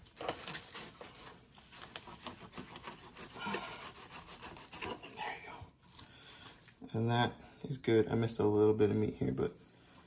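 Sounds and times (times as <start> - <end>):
knife scraping fish skin: 0.0 - 6.8.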